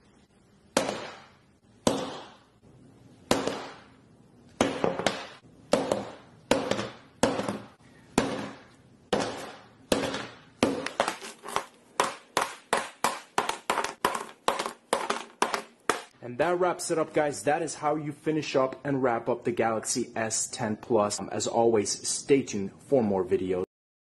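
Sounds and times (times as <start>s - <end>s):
hammer striking phone: 0.8s - 2.4s, 3.3s - 3.9s, 4.6s - 11.2s, 12.0s - 16.1s.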